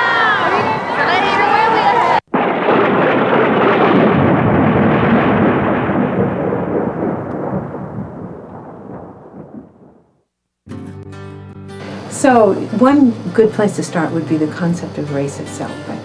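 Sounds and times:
loud dense rumble: 2.2 - 9.9.

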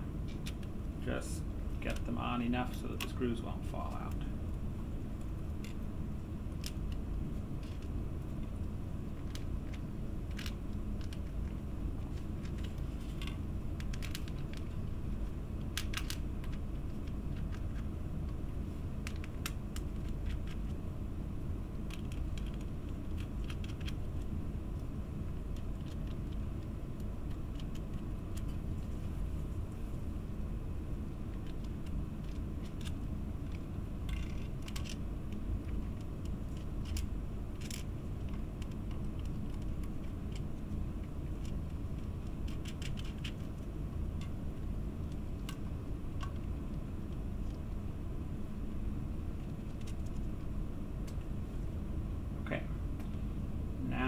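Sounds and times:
low background hum: 0.0 - 54.0.

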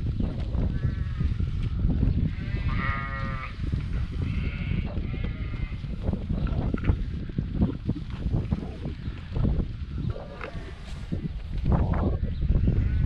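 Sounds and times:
steady low rumble: 0.0 - 13.0
sheep bleating: 2.3 - 3.6, 4.2 - 5.9.

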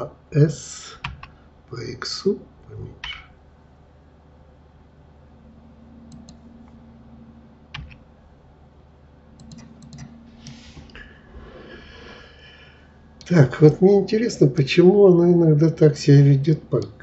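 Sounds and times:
keyboard and mouse clicks: 6.1 - 6.8, 7.8 - 8.0, 9.4 - 10.6.

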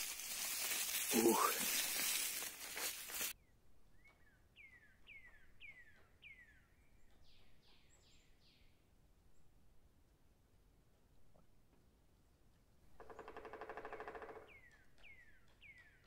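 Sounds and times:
songbird singing: 0.0 - 9.6, 13.2 - 16.0.

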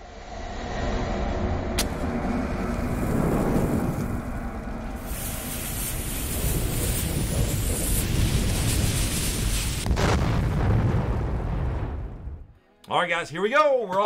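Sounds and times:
deep rumble: 0.0 - 12.5
flames: 1.8 - 12.5
lit fuse fizzing: 2.6 - 10.0.

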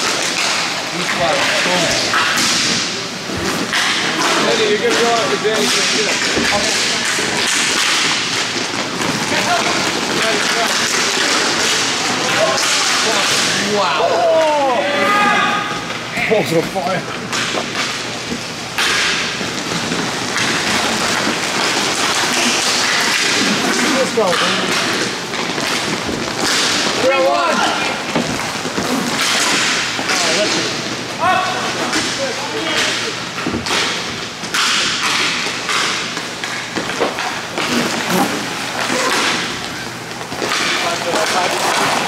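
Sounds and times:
stick and puck knocks: 3.6 - 13.6, 17.3 - 27.0, 32.8 - 42.0
skates scraping ice: 18.8 - 30.7, 35.0 - 42.0.

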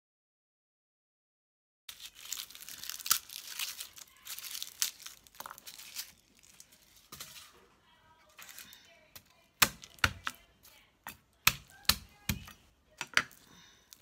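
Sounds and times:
garlic skins crinkling: 1.9 - 7.6.

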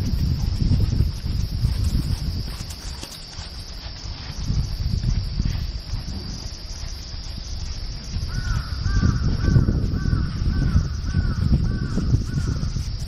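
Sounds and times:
wind rumble on microphone: 0.0 - 13.0
crow cawing: 8.3 - 12.6.

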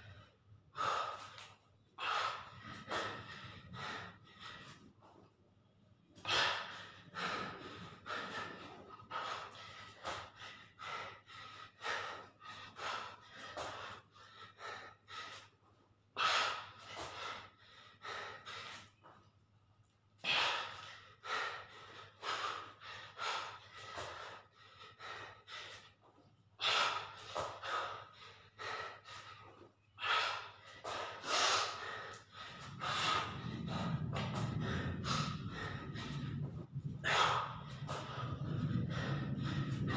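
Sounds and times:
man panting hard: 0.0 - 5.3, 6.2 - 19.1, 20.2 - 39.9
low rumble: 2.2 - 5.2, 31.0 - 39.9.

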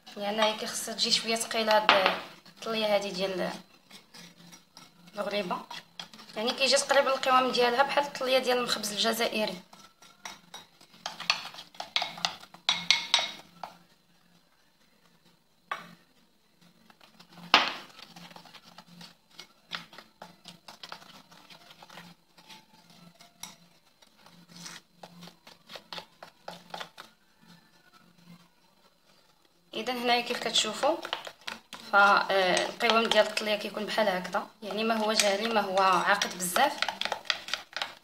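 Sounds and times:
metal spoon clinking on glass bowl: 9.8 - 13.4.

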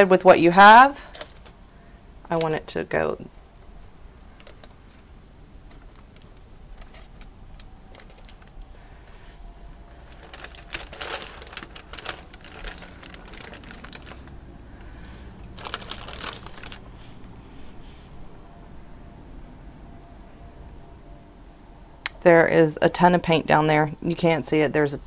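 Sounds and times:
plastic sheeting crinkling: 3.6 - 9.3, 9.9 - 17.2.

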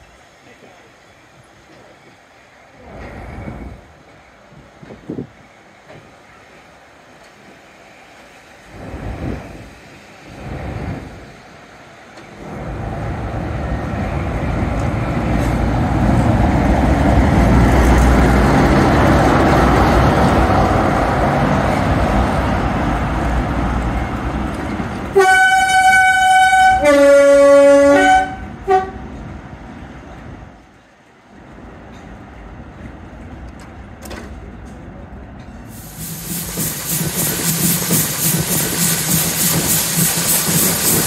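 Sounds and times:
diesel locomotive passing: 0.0 - 41.0
two-tone train horn: 25.1 - 29.1.

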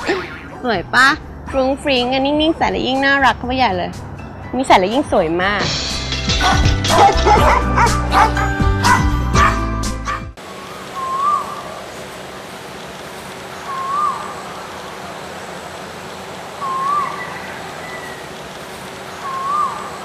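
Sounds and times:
animal call swooping up: 10.9 - 11.8, 16.5 - 18.4, 19.2 - 20.0.

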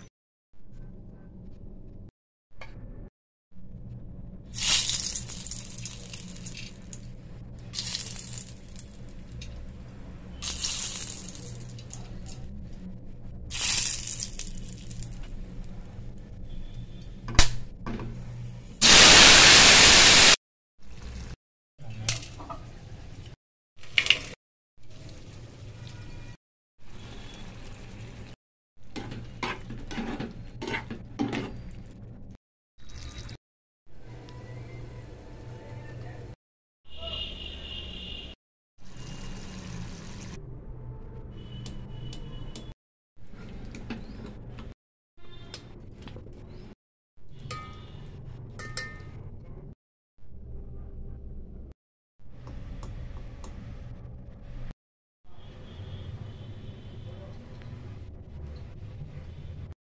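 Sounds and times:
spices sizzling in hot oil: 4.6 - 7.0, 7.7 - 9.1, 10.4 - 11.9, 13.5 - 15.2, 18.8 - 21.3, 38.9 - 40.4
metal spatula scraping a pan: 29.0 - 31.6.

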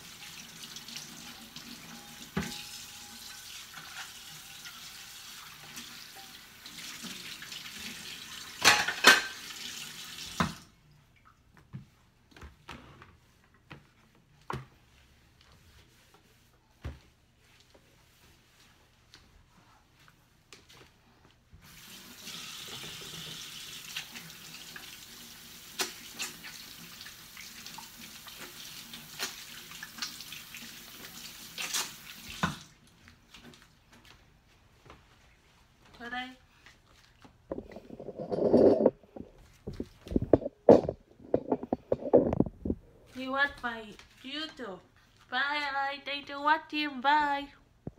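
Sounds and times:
faucet running into sink: 0.0 - 10.7, 21.6 - 32.7
dishware clattering: 8.6 - 9.4.

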